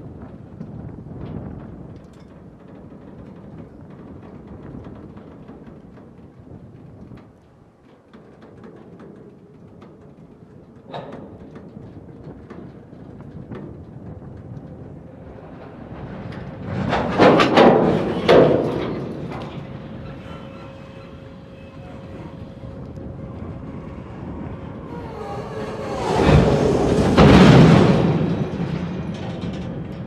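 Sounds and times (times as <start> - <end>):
wheels and couplings clanking: 7.2 - 30.0
freight train rolling past: 9.2 - 30.0.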